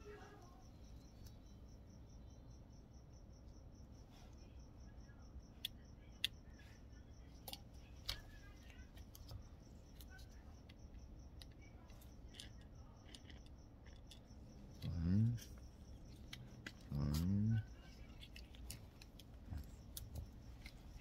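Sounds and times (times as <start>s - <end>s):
faint pulsing high-pitched whine: 0.0s - 21.0s
small parts clicking and tapping: 7.3s - 21.0s.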